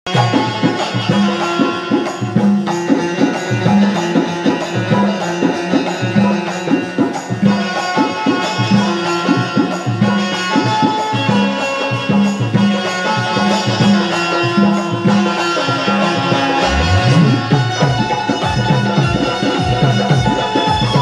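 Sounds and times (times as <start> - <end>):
hand drum fast rhythm: 0.1 - 7.8, 16.6 - 21.0
held melody lines: 16.5 - 18.0.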